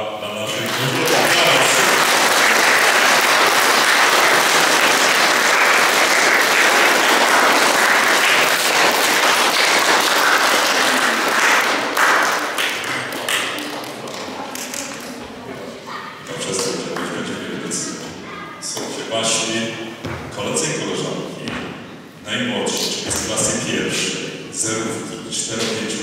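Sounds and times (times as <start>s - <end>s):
audience applause: 0.4s - 15.2s.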